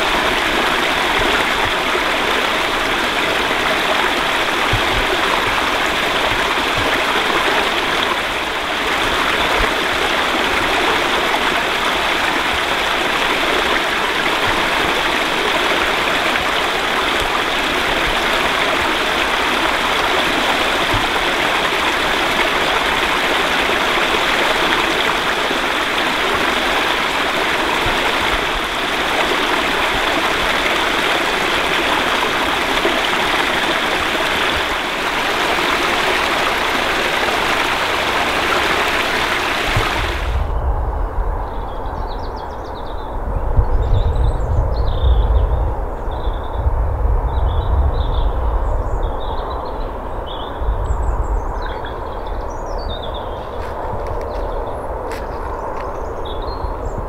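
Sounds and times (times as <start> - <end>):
stream water trickling over stones: 0.0 - 40.4, 52.5 - 56.1.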